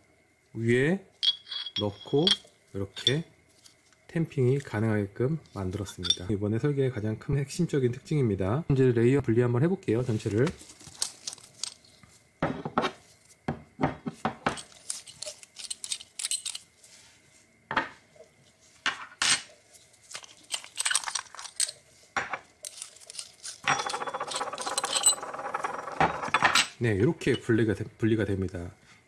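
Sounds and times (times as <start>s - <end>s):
metal rings set on wooden table: 1.2s - 3.2s, 5.8s - 6.3s, 12.4s - 16.6s, 18.8s - 19.5s, 20.4s - 27.5s
metallic clicks and clinks: 1.2s - 3.2s, 14.5s - 16.7s, 20.2s - 21.8s, 22.6s - 27.5s.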